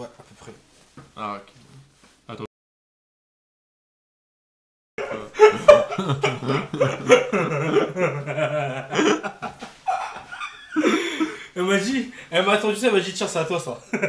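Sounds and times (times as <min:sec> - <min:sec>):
men laughing: 0:05.0 - 0:12.3, 0:13.8 - 0:14.0.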